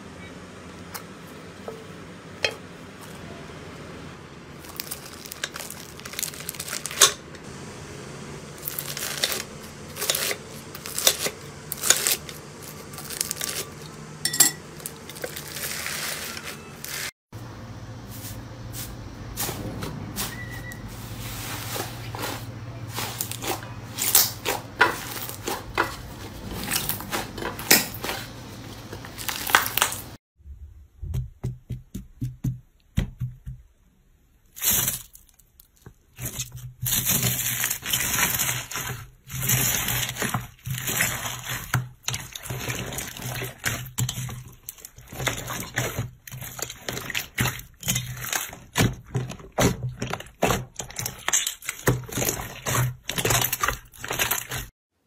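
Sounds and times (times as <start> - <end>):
slime squishing and tearing: 34.5 - 54.7.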